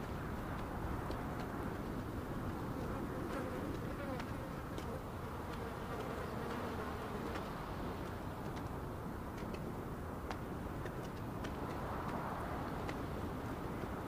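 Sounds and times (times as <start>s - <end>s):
faint ticks: 3.3s - 8.8s.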